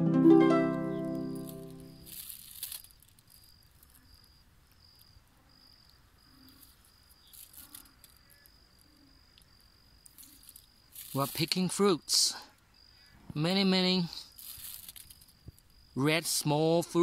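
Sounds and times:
faint insect chirping: 0:00.7 - 0:17.0
brief rustle: 0:01.4 - 0:04.1, 0:06.4 - 0:08.5, 0:14.3 - 0:15.6.

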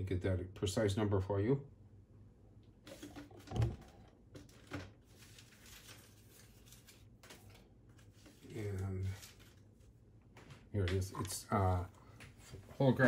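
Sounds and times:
rustling and handling noises: 0:02.9 - 0:13.0.

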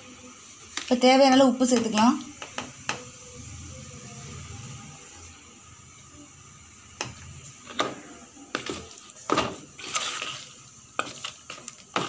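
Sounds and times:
plastic spoon stirring in bowl: 0:08.5 - 0:12.0.

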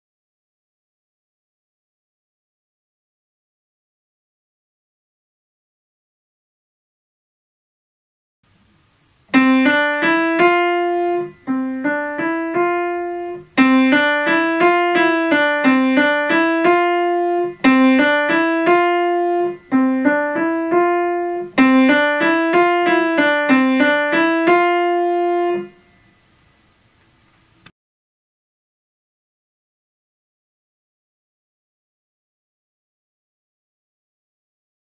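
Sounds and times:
simple piano melody: 0:09.2 - 0:26.2.

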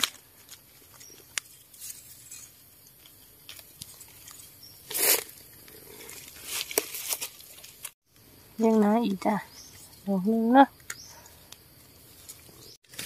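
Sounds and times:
dry leaves and twigs crunching: 0:00.0 - 0:08.0, 0:10.8 - 0:13.0.

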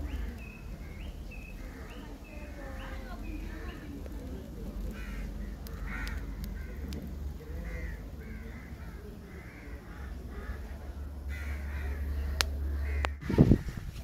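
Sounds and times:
birds calling: 0:00.0 - 0:14.0
sharp clicks: 0:04.8 - 0:07.0.

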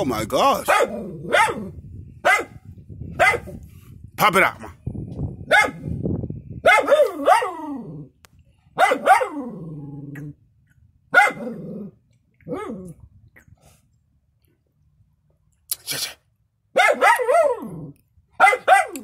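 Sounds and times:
dog barking: 0:00.6 - 0:02.6, 0:03.2 - 0:03.6, 0:05.4 - 0:05.9, 0:06.6 - 0:07.7, 0:08.8 - 0:09.4, 0:11.1 - 0:11.6, 0:16.7 - 0:17.7, 0:18.4 - 0:19.0
dog growling: 0:09.3 - 0:10.4, 0:11.4 - 0:13.0.

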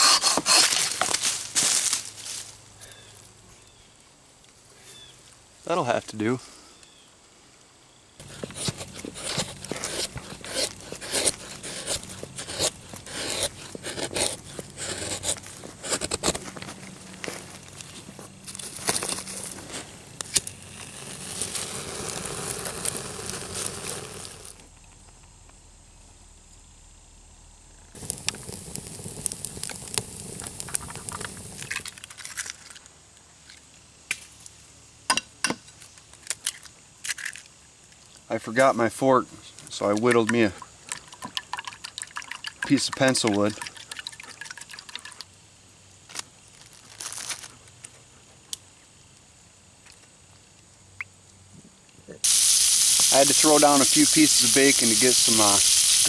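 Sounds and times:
knife shaving wood: 0:00.0 - 0:01.1, 0:08.2 - 0:16.7
campfire crackling and popping: 0:08.2 - 0:25.6, 0:27.9 - 0:32.8, 0:39.6 - 0:45.4, 0:52.2 - 0:56.0.

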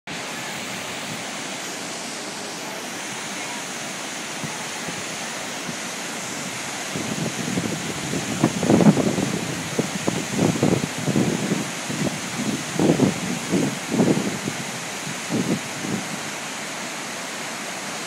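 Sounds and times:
whitewater rapid rushing: 0:00.1 - 0:18.0
wind buffeting microphone: 0:04.4 - 0:16.4.

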